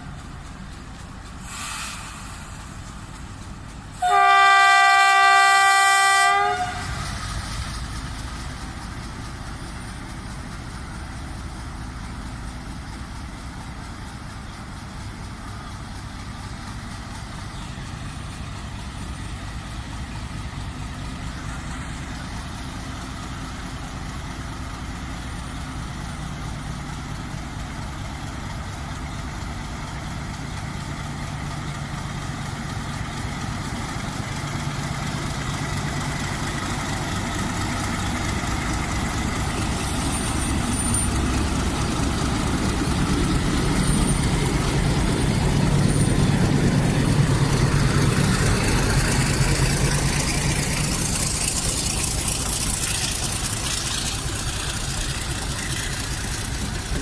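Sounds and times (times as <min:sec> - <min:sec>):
train rumbling: 0:00.0 - 0:57.0
train horn blast: 0:04.0 - 0:07.0
low engine hum: 0:06.7 - 0:57.0.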